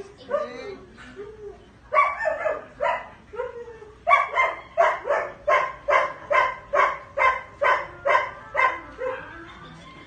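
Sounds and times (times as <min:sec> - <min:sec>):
dog barking: 0:01.9 - 0:09.3.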